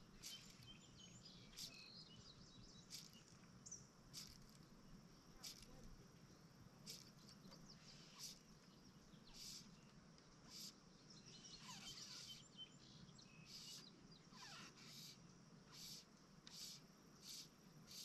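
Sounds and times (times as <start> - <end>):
insect chirping: 0.0 - 18.0
faint bird calls: 6.8 - 18.0.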